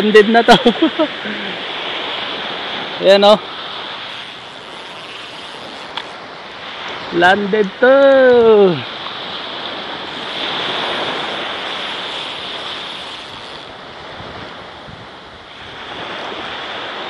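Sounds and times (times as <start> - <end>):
waves washing up beach: 0.0 - 17.0
wind on microphone: 8.3 - 17.0.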